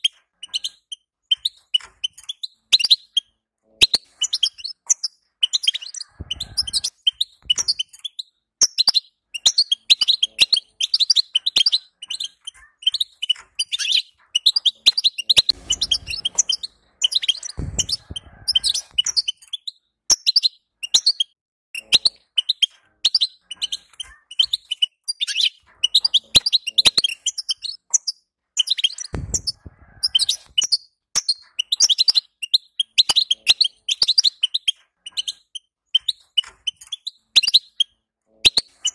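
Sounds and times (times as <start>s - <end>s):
finch twittering: 0.0s - 38.9s
low thumps: 15.5s - 19.1s, 29.2s - 30.1s.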